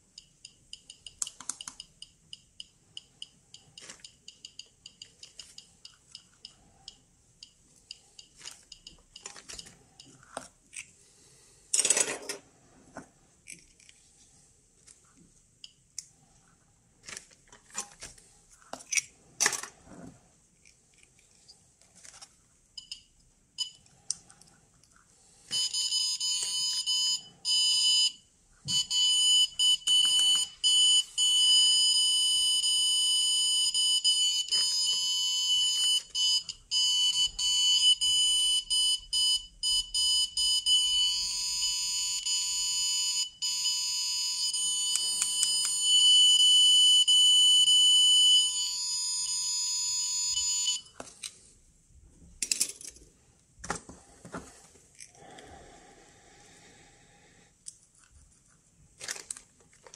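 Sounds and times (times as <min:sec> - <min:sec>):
geiger counter beeper buzzing: 0:25.7 - 0:50.8.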